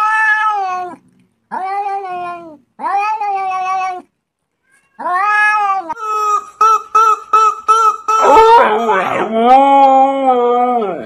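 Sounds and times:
cat meowing: 0.0 - 6.0.

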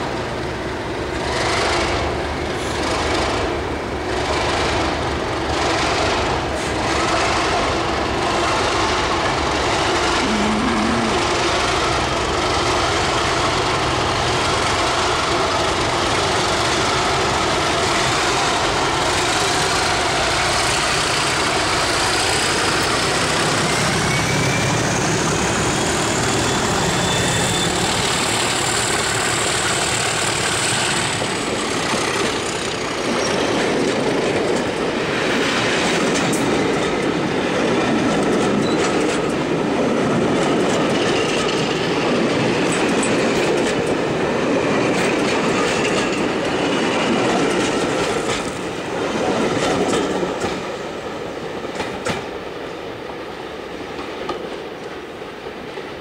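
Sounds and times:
diesel locomotive engines: 0.0 - 56.0
high engine whine: 10.1 - 11.8
train wheels clattering over joints: 11.7 - 50.7.

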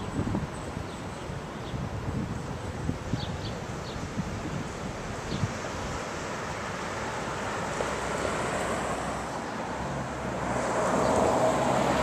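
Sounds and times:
street traffic: 0.0 - 12.0
wind: 0.0 - 12.0
vehicle engine: 6.4 - 12.0.

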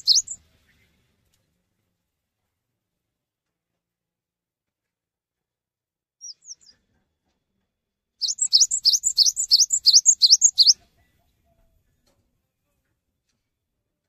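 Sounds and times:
bird chirping: 0.0 - 0.9, 6.2 - 6.8, 8.2 - 11.6.

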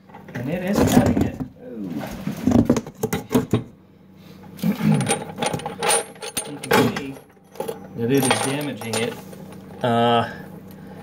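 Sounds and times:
steel chain clinking: 4.8 - 9.7.

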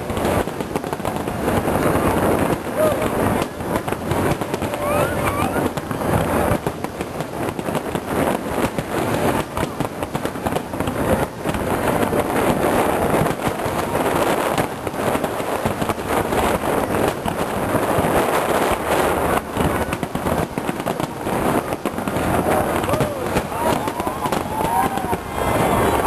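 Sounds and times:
fireworks booming and crackling: 0.0 - 26.0.

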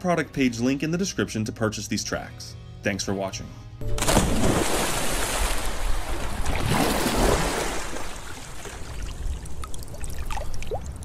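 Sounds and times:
water rushing and pouring: 4.2 - 11.0
water dripping: 8.3 - 11.0.

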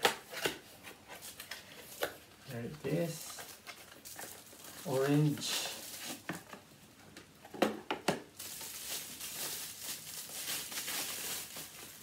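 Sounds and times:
packaging crinkling: 2.9 - 6.6, 8.3 - 12.0.

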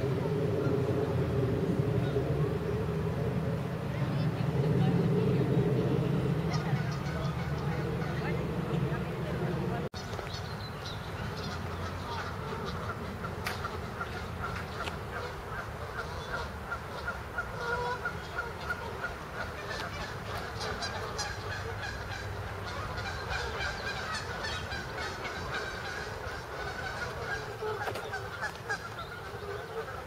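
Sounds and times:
waterfowl honking and calling: 6.4 - 30.0
high bird calls: 10.0 - 30.0.

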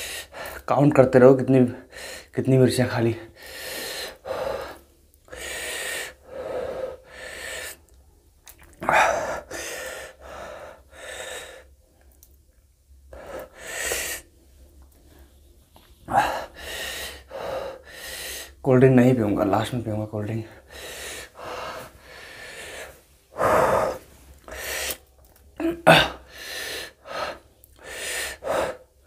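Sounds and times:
man breathing in hissing gasps: 3.3 - 7.9, 13.2 - 14.3, 16.0 - 18.6, 20.6 - 25.1, 26.1 - 29.0.

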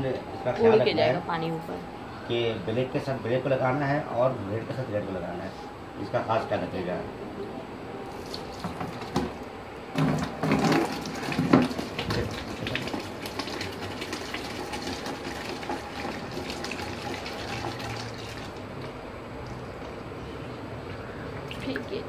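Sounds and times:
water gushing into plastic bucket: 8.1 - 20.0.

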